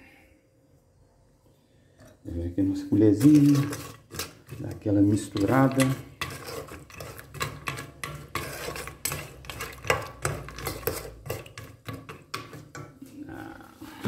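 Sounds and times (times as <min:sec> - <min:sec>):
wooden spoon scraping a pot: 0:02.0 - 0:14.0
peanuts clattering in a pot: 0:02.8 - 0:13.0.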